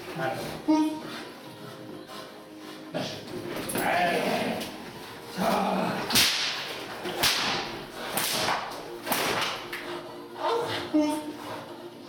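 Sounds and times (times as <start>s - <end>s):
stick slapping cracks: 6.0s - 9.9s.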